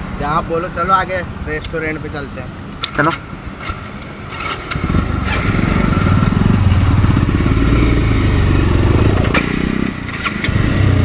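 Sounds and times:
motorcycle engine accelerating: 2.9 - 11.0.

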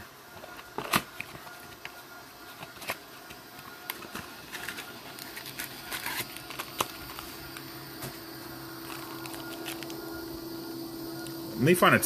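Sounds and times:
foil wrapper crinkling: 0.4 - 8.2, 8.8 - 10.1.

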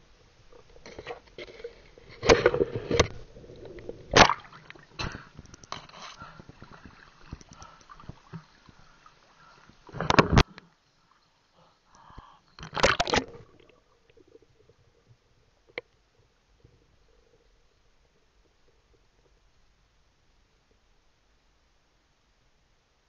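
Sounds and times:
water splashing and sloshing: 0.1 - 11.6, 12.6 - 16.0
faint clicks underwater: 2.2 - 8.8
loud splashes: 4.1 - 4.6.

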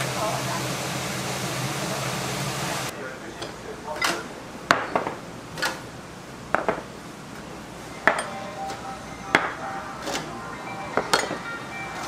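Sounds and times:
ceramic plates clinking on wooden table: 8.0 - 8.3, 11.0 - 11.4.

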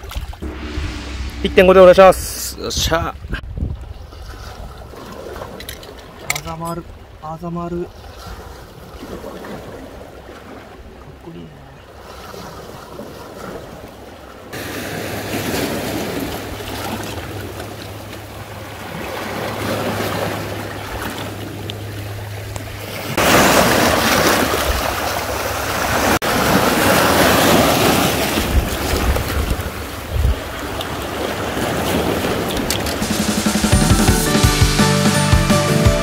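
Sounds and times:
wind buffeting microphone: 0.2 - 5.3.

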